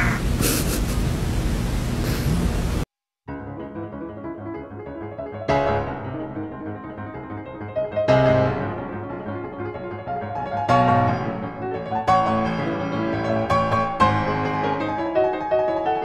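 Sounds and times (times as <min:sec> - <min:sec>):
slow piano music: 0:03.3 - 0:16.0.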